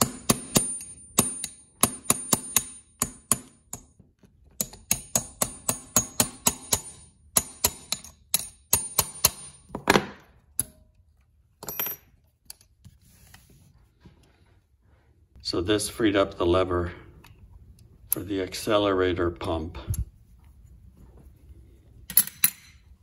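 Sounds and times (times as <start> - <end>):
hammer tapping metal punch: 0.0 - 10.8.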